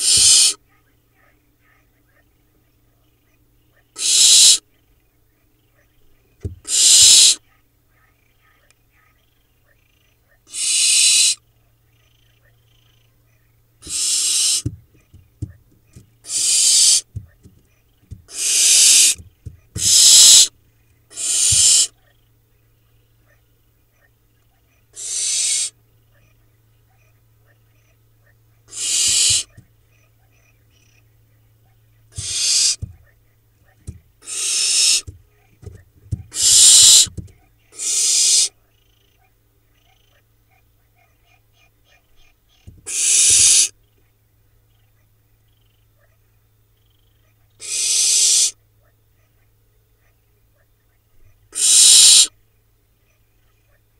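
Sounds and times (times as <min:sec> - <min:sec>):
owl nestlings hissing calls: 0:00.0 - 0:00.6, 0:03.9 - 0:04.6, 0:06.5 - 0:07.4, 0:10.5 - 0:11.4, 0:13.8 - 0:15.5, 0:16.2 - 0:17.3, 0:18.0 - 0:22.0, 0:25.0 - 0:25.8, 0:28.7 - 0:29.6, 0:32.1 - 0:33.0, 0:33.9 - 0:35.2, 0:36.2 - 0:38.6, 0:42.6 - 0:43.8, 0:47.6 - 0:48.6, 0:51.5 - 0:52.4
faint knocks: 0:06.4 - 0:06.7, 0:14.6 - 0:16.2, 0:17.0 - 0:18.3, 0:19.2 - 0:19.9, 0:32.2 - 0:33.1, 0:35.0 - 0:36.4.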